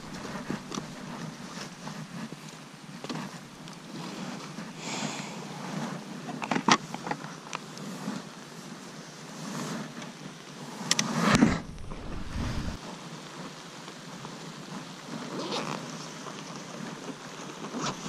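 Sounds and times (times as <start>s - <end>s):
motorcycle moving slowly: 0.0s - 4.8s, 5.4s - 12.8s
wind and rain noise: 0.0s - 18.0s
low rumble: 11.4s - 12.8s.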